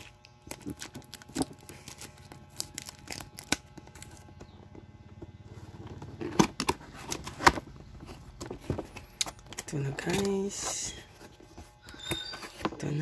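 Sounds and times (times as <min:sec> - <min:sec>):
plastic wrapping crackling: 0:00.0 - 0:04.2.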